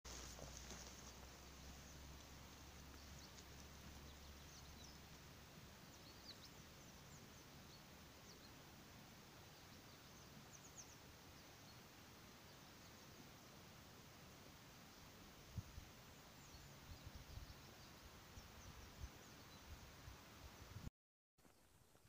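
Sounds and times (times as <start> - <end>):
faint outdoor hiss: 0.1 - 22.0.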